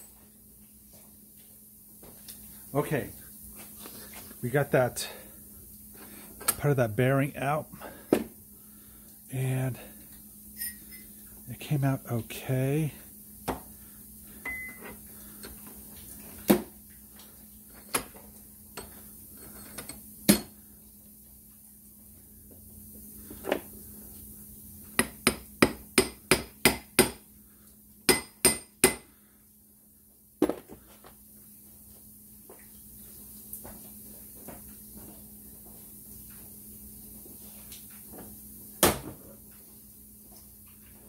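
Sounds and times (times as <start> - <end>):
hammer striking steel: 28.1 - 29.1.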